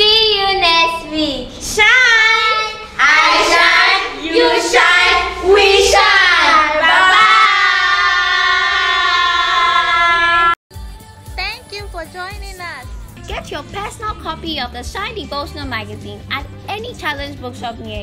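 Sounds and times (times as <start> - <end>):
children and women singing: 1.7 - 10.6.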